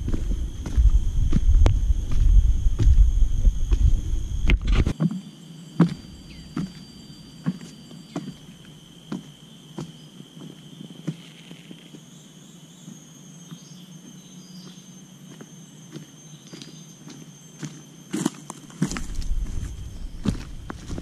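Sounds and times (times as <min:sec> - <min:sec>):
footsteps on dry leaves and twigs: 0:00.0 - 0:05.0, 0:14.6 - 0:21.0
insects droning: 0:00.0 - 0:21.0.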